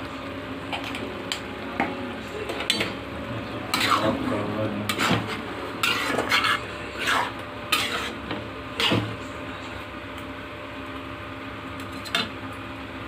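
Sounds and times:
metal spatula scraping a pan: 3.7 - 9.2.

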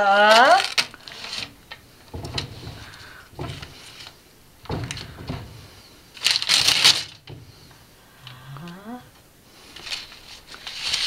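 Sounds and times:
sliding door rattling and knocking: 1.2 - 8.0.

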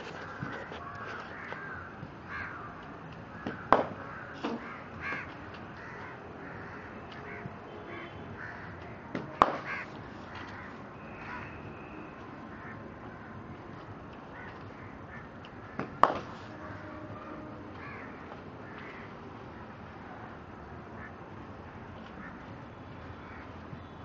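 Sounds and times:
crows cawing: 0.0 - 11.7, 12.5 - 13.4, 14.3 - 15.9, 17.8 - 19.1, 22.2 - 22.4, 23.2 - 23.5
cricket bat striking ball: 3.4 - 4.7, 9.1 - 9.8, 15.8 - 16.4.

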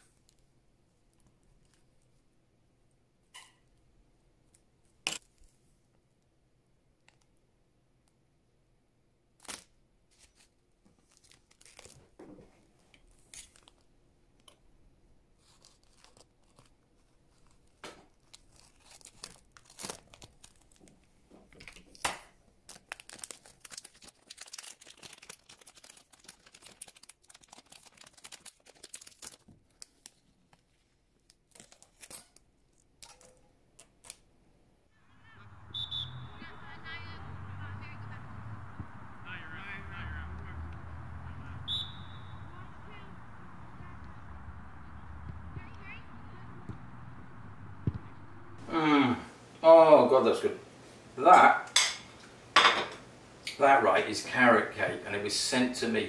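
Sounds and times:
plastic bag crinkling and tearing: 9.4 - 12.1, 15.4 - 20.9, 22.6 - 34.2.

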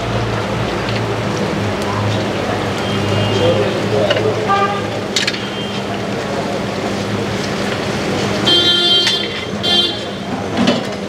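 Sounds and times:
street traffic noise: 0.0 - 11.0
vehicle horns honking: 2.8 - 3.8, 4.4 - 6.0, 8.4 - 10.4.

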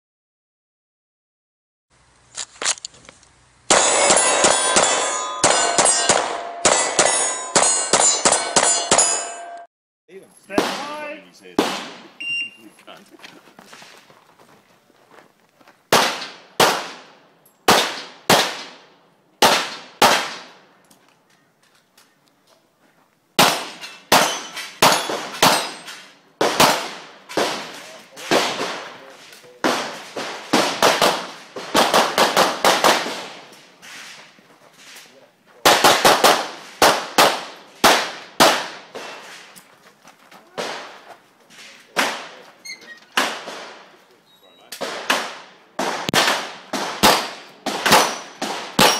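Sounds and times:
pistol shots echoing: 3.7 - 9.6, 10.6 - 11.0, 11.6 - 12.1, 15.9 - 18.8, 19.4 - 20.6, 23.4 - 29.0, 29.6 - 33.5, 35.7 - 39.2, 44.8 - 48.9.

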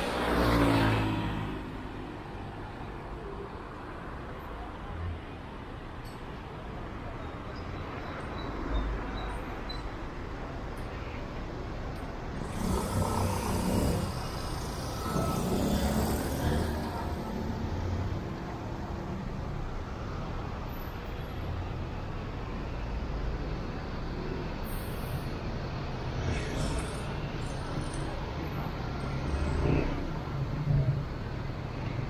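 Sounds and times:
motor vehicles driving past: 0.0 - 2.6, 12.2 - 18.8.

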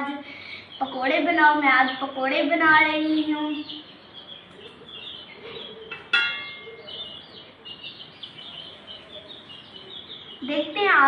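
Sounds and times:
small birds chirping: 0.0 - 11.0
sharp metallic clink: 6.0 - 6.9.

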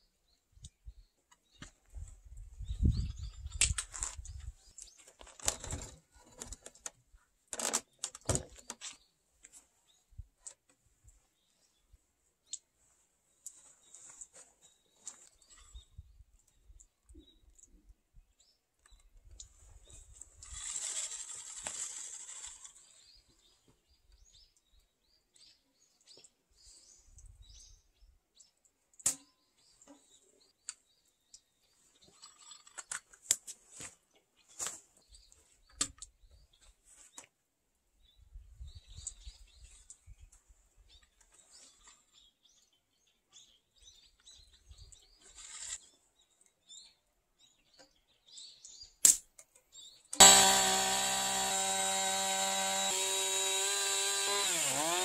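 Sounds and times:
tape measure blade rasping: 20.4 - 22.9, 45.3 - 45.9, 50.2 - 55.0.

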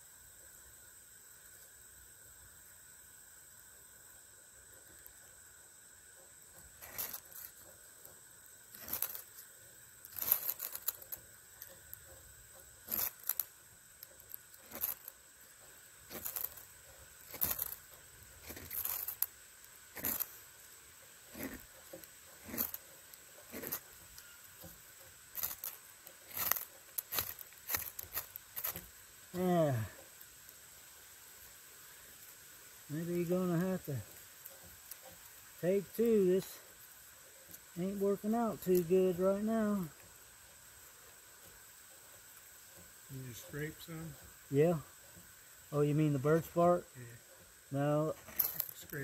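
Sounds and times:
ferro rod scraping: 6.5 - 30.2.

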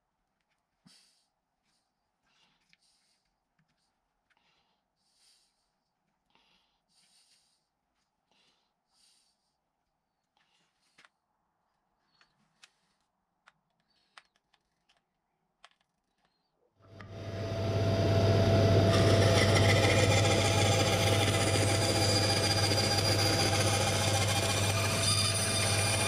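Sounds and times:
bandsaw cutting wood: 17.0 - 26.0.

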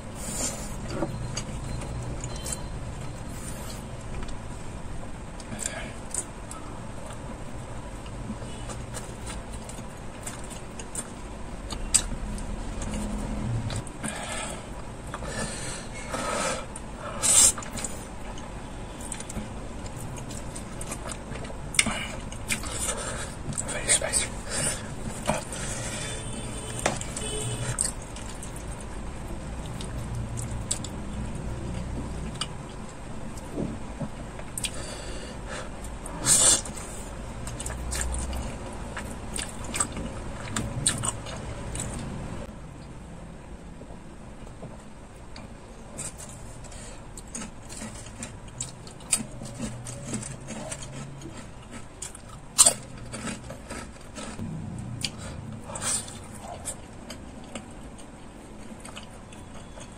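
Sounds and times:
wet chewing and slurping noodles: 5.3 - 33.5, 34.4 - 42.2, 45.4 - 59.9
biting crunchy fried chicken: 45.9 - 59.9.

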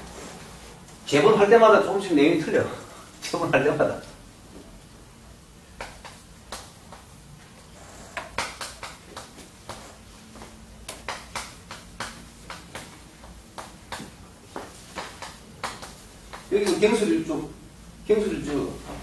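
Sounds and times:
chalk tapping on a blackboard: 8.1 - 16.8.

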